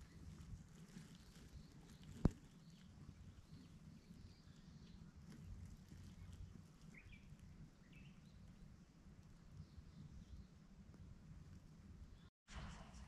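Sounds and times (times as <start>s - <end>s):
low rumble: 12.5s - 13.0s.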